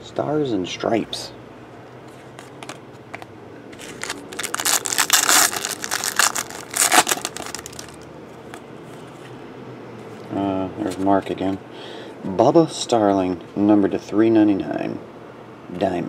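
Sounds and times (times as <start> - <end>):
foil wrapper tearing and crinkling: 3.8 - 8.0.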